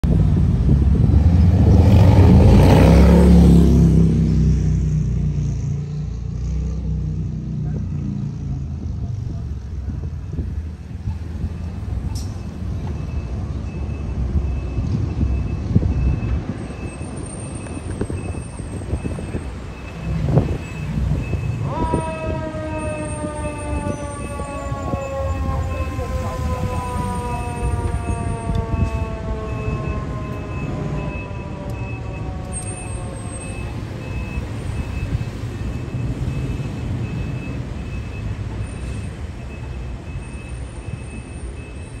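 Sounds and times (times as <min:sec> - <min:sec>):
diesel engine rumbling: 0:00.0 - 0:42.0
fire engine siren: 0:10.0 - 0:42.0
high warning beep: 0:33.3 - 0:42.0.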